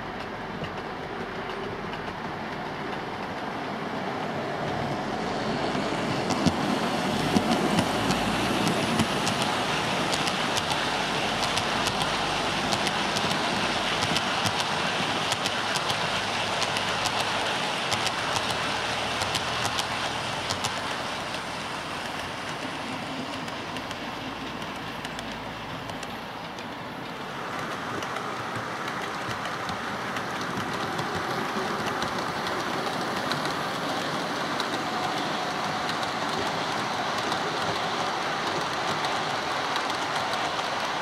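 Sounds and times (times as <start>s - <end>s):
model train wheels rolling on rail: 0.0s - 41.0s
clicks over rail joints: 0.2s - 3.4s, 14.0s - 41.0s.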